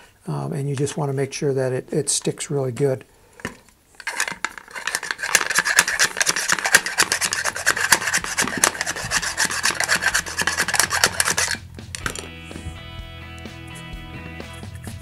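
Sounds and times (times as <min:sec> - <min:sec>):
dowel scraping inside nose cone: 0:04.0 - 0:11.6.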